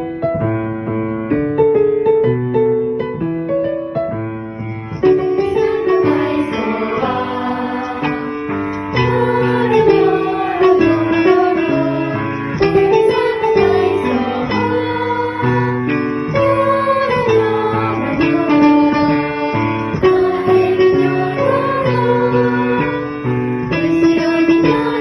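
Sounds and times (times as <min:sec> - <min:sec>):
instrumental accompaniment: 0:00.0 - 0:25.0
person singing children's song: 0:05.3 - 0:19.3.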